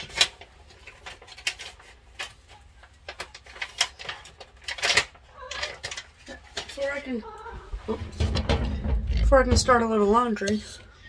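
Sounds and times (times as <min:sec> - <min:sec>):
objects clicking and knocking: 0:00.0 - 0:07.0.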